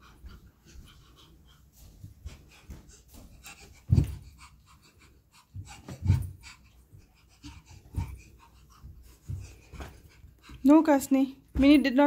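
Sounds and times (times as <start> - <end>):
toddler climbing carpeted stairs: 0.0 - 12.0
heavy thumps: 2.0 - 4.5, 5.5 - 10.7, 11.4 - 12.0.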